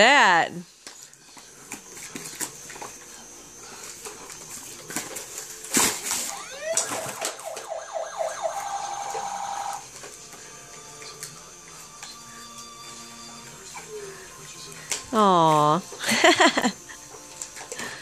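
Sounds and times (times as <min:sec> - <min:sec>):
electronic toy siren sounds: 0:06.2 - 0:09.9.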